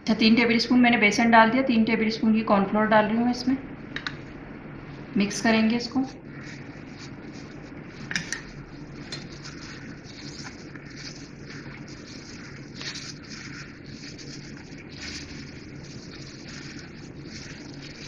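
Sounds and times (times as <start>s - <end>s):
plastic glove rustling: 4.8s - 18.0s
fish pieces rubbing against bowl: 6.3s - 18.0s.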